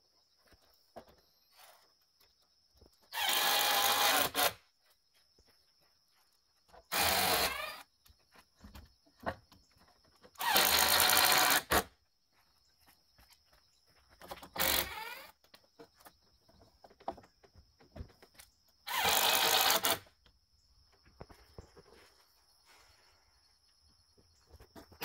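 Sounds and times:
cordless drill whirring: 3.1 - 4.6, 6.9 - 7.8, 10.4 - 11.8, 14.6 - 15.3, 18.9 - 20.0.

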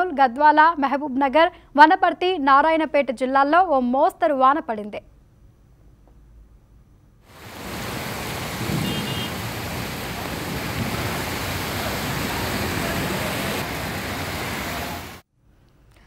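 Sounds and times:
heavy rain rushing: 7.3 - 15.2
traffic hiss on wet streets: 7.3 - 15.2.

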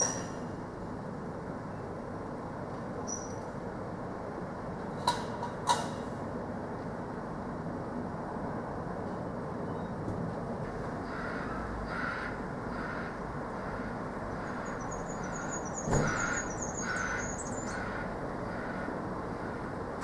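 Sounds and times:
steady background noise: 0.0 - 20.0
small bird chirping: 3.1 - 3.5, 14.4 - 17.8
crow cawing: 11.0 - 19.7.

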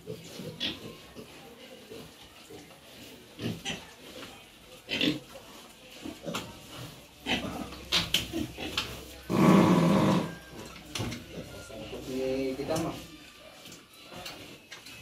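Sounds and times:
pigs grunting: 0.0 - 4.2, 4.8 - 5.3, 6.0 - 10.6.

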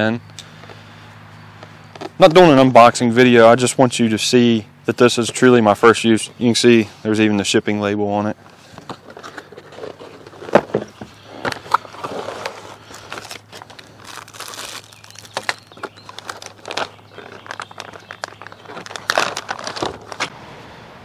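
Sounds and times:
cardboard box being opened: 8.8 - 20.3
plastic bags crinkling: 9.1 - 20.3.

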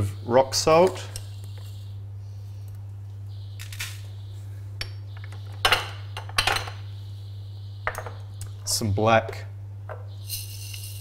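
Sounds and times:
glass jars clinking: 10.2 - 11.0.

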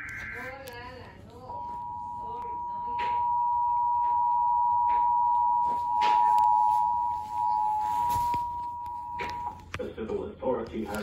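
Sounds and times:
two-tone alert signal: 1.5 - 9.6.

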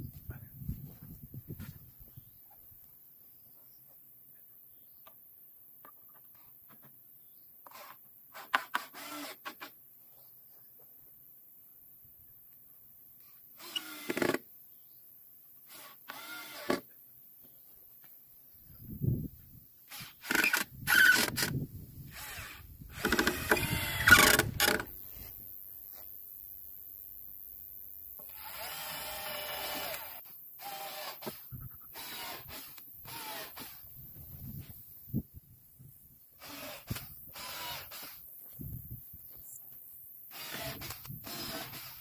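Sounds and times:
cordless drill into wood: 7.6 - 9.8, 13.6 - 14.5, 15.6 - 16.9, 19.9 - 25.0, 28.2 - 34.0, 36.4 - 38.3, 40.3 - 42.0
wood and tools clicking: 19.9 - 21.6, 23.0 - 25.0.

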